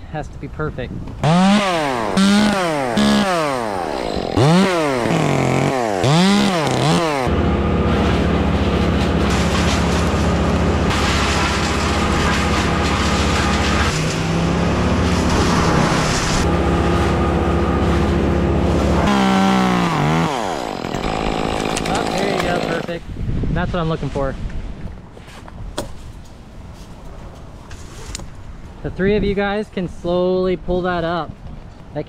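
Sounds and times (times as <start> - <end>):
chainsaw revving and cutting: 1.2 - 23.0.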